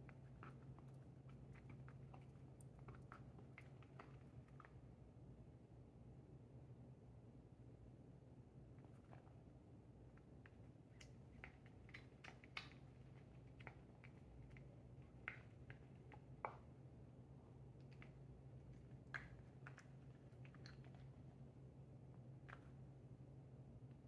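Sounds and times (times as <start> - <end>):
cat chewing: 0.0 - 5.0, 10.2 - 16.8, 17.6 - 21.4.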